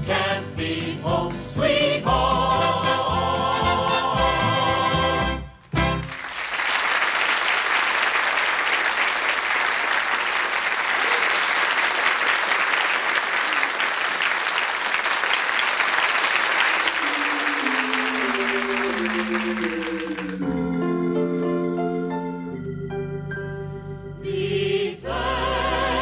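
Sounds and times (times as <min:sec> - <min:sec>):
audience applauding: 0:05.7 - 0:20.8
falling musical notes: 0:17.0 - 0:24.6.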